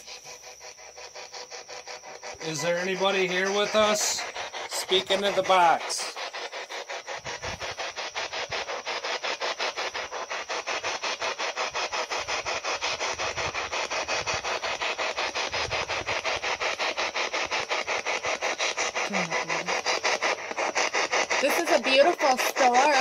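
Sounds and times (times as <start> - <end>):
radio static sweeping: 0.0 - 23.0.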